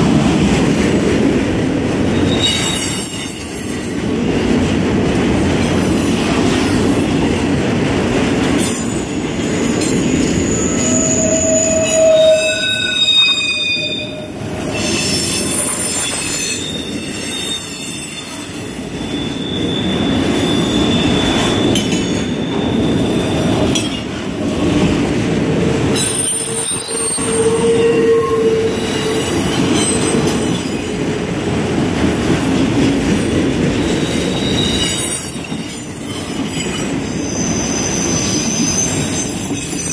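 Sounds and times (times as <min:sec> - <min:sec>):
train wheels rumbling on rails: 0:00.0 - 0:39.9
wheels squealing: 0:08.8 - 0:23.9.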